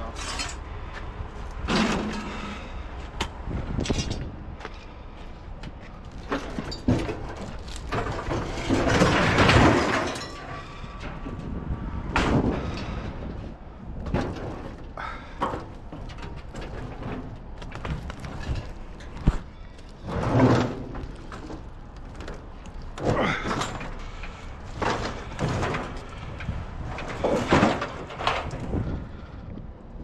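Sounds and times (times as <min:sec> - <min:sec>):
scrap metal clanking: 0:00.0 - 0:00.6, 0:01.6 - 0:02.7, 0:06.2 - 0:11.5, 0:14.0 - 0:29.3
scrap scraping drag: 0:16.1 - 0:22.3.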